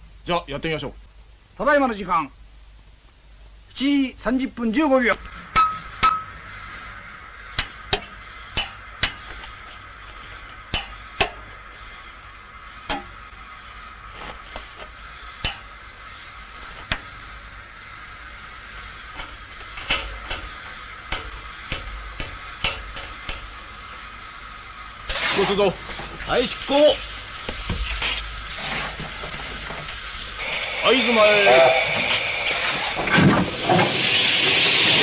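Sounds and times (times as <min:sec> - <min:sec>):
faint steady high hum: 0:00.0 - 0:33.6
hammers tapping metal wheels: 0:07.6 - 0:09.4, 0:10.7 - 0:11.5, 0:19.2 - 0:23.6.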